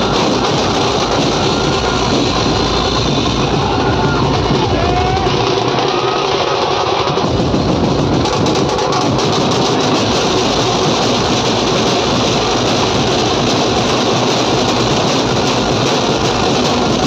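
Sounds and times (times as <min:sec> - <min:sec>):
drum kit through horn loudspeakers: 0:00.0 - 0:17.0
hand-held drums beaten with sticks: 0:00.0 - 0:17.0.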